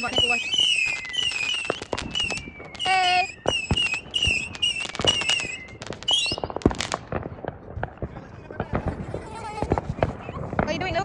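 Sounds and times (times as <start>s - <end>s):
fireworks falling whistles: 0.0s - 7.3s
fireworks popping and crackling: 0.0s - 11.0s
loud firework bang: 0.0s - 11.0s.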